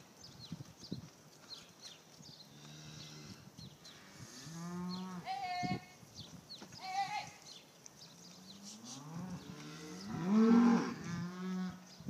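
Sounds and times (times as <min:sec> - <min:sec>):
cow mooing: 0:09.0 - 0:11.8.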